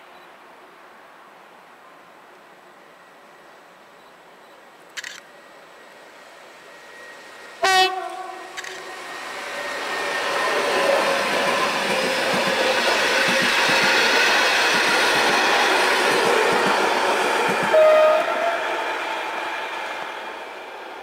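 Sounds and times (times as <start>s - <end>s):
train wheels rushing on rail: 4.8s - 21.0s
wheels clicking over rail joints: 10.4s - 16.8s.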